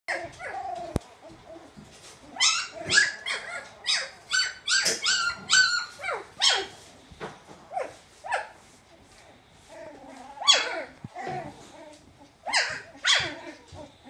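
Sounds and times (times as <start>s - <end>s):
puppies yipping and squealing: 0.1s - 6.8s, 9.6s - 14.0s.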